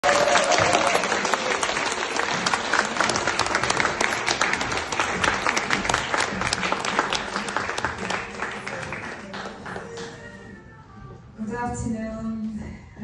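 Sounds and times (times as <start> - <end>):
audience applauding: 0.0 - 10.3.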